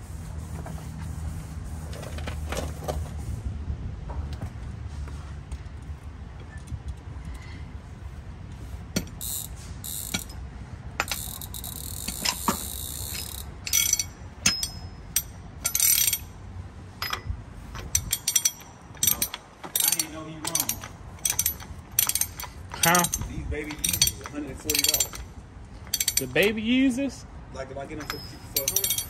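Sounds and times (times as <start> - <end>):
socket ratchet clicking: 9.0 - 10.4, 11.0 - 16.3, 17.8 - 26.6, 28.0 - 29.0.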